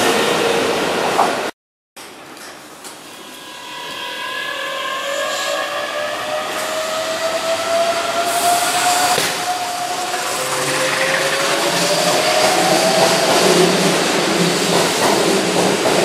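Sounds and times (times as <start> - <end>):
electric train motors whining: 3.0 - 13.8.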